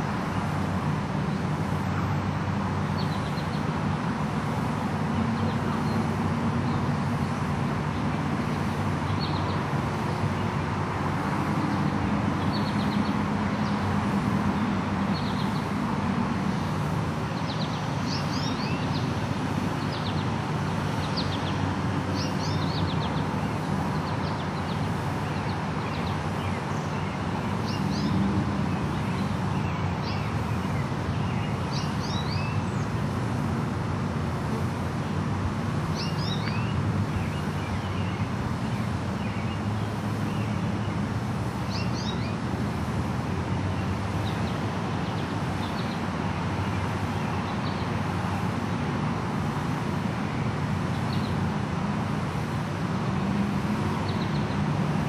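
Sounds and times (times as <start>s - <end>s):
road traffic rumble: 0.0s - 55.0s
birds chirping: 2.8s - 3.8s, 4.6s - 33.3s, 34.3s - 42.8s, 43.4s - 48.9s, 49.5s - 55.0s.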